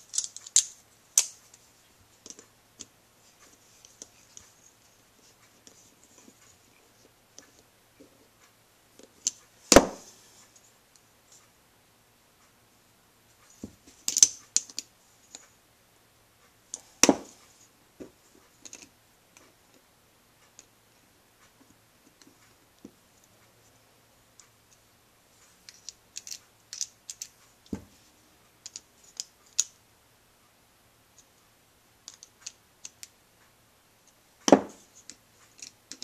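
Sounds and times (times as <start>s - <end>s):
small metal parts clinking: 0.0s - 1.4s, 25.6s - 27.4s.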